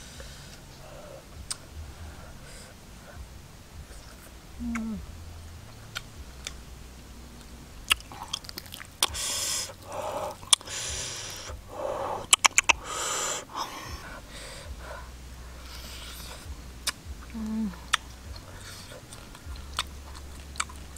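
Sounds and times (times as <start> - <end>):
chewing and lip smacks: 7.4 - 11.6, 12.2 - 14.1, 15.6 - 20.9
hissing breaths drawn in: 9.0 - 16.5.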